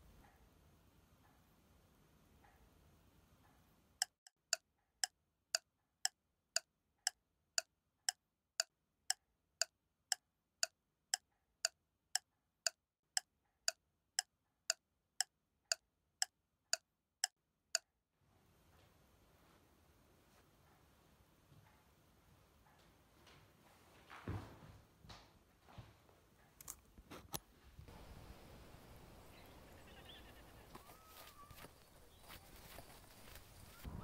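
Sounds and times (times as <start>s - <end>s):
clock ticking: 4.0s - 17.9s.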